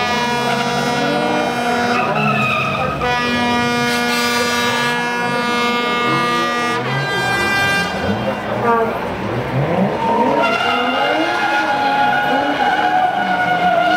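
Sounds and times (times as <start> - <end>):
car engines revving high: 0.0 - 13.9
tyres squealing: 1.0 - 3.8.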